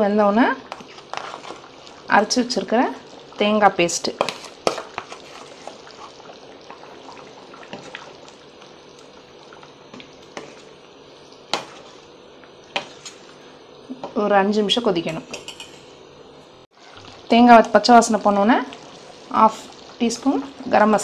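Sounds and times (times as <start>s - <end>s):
curry bubbling in a pot: 0.4s - 13.5s, 16.7s - 21.0s
spoon clinking against pot: 15.1s - 15.9s.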